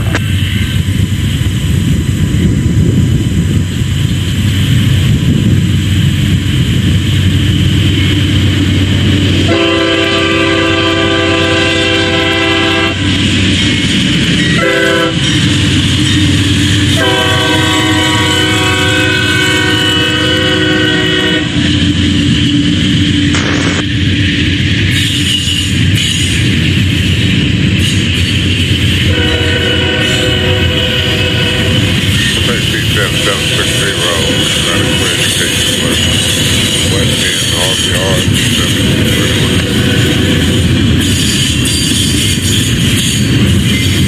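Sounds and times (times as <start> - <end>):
low engine rumble: 0.0 - 42.0
locomotive air horn: 9.4 - 13.1, 14.5 - 15.3, 16.9 - 21.6, 29.1 - 36.4, 37.2 - 40.6.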